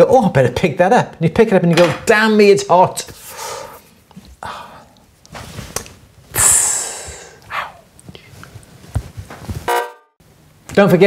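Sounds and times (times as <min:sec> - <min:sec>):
man breathing out: 0:03.3 - 0:05.0, 0:06.4 - 0:08.3
man sighing: 0:04.4 - 0:05.0, 0:06.3 - 0:07.9.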